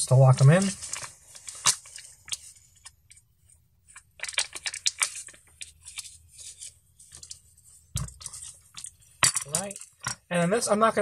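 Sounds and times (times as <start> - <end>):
plastic bags crinkling: 0.4 - 2.6, 3.9 - 7.4, 8.0 - 10.2.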